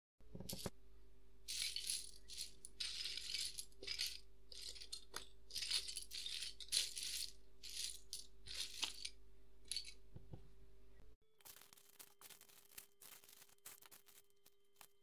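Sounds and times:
faint steady hum: 0:00.2 - 0:11.2.

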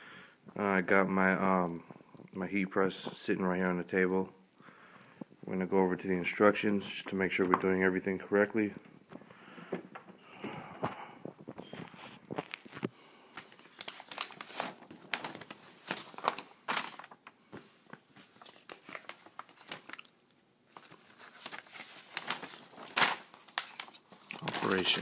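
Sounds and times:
paper pages rustling: 0:10.8 - 0:25.0.

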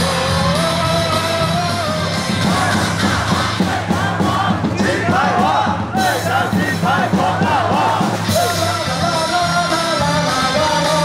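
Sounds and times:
cheer song over loudspeakers: 0:00.0 - 0:11.0
crowd chanting: 0:02.0 - 0:09.5.

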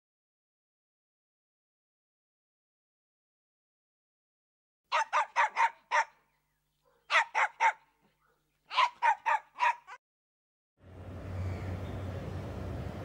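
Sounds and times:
dog barking: 0:04.9 - 0:06.2, 0:06.8 - 0:10.0.

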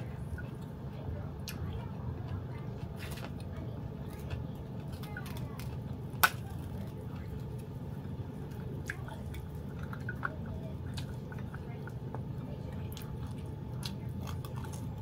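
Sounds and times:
low hum: 0:00.0 - 0:15.0
wet chewing: 0:00.0 - 0:15.0
cracker snapping: 0:04.1 - 0:07.7, 0:12.8 - 0:15.0.

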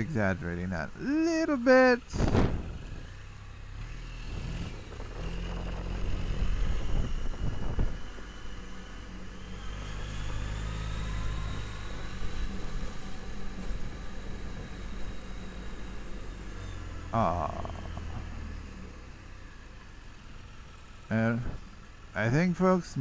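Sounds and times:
scooter engine running: 0:00.0 - 0:22.4
wind noise on microphone: 0:02.1 - 0:03.1, 0:04.3 - 0:08.3.

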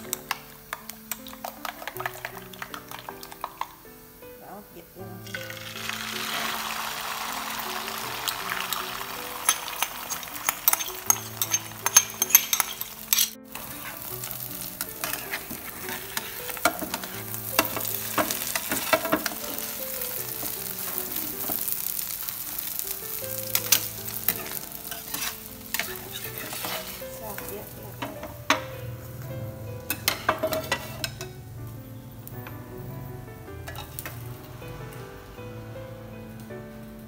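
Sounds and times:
eggs sizzling in hot oil: 0:00.0 - 0:37.0
spatula scraping and tapping pan: 0:09.4 - 0:21.8, 0:23.4 - 0:28.8, 0:29.9 - 0:31.4.

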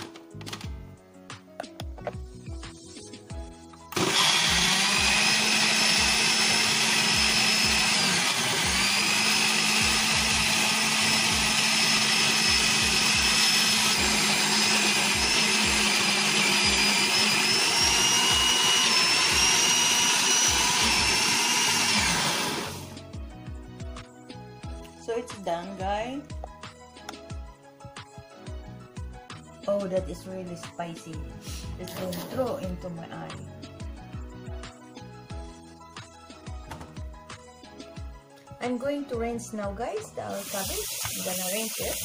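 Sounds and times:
blender running: 0:03.9 - 0:23.0, 0:40.3 - 0:42.0.

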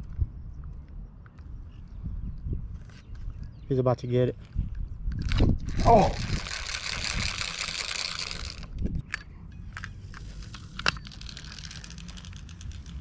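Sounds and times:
low wind rumble: 0:00.0 - 0:13.0
fishing reel rattling: 0:05.2 - 0:08.8, 0:10.7 - 0:13.0.

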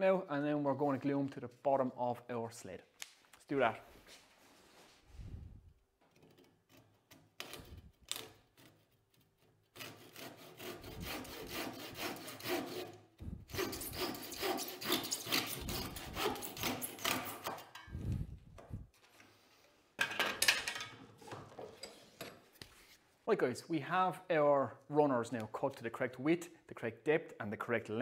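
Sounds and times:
hand saw cutting wood: 0:06.1 - 0:17.8.

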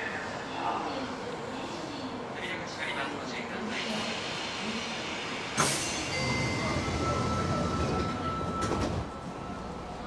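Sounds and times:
train doors sliding shut: 0:05.0 - 0:09.4.

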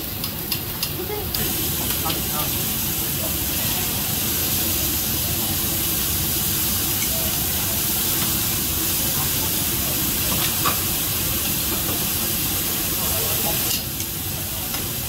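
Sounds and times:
food sizzling on a griddle: 0:00.0 - 0:15.0.

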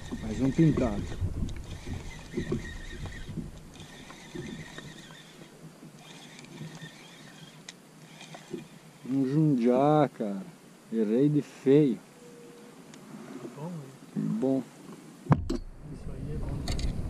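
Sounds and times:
fishing reel cranking: 0:00.0 - 0:09.2
faint high whine: 0:00.0 - 0:14.8.

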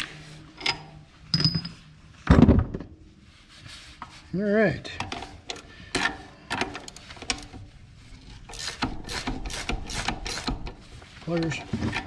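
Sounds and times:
wrench clicking against a nut: 0:08.5 - 0:10.7.

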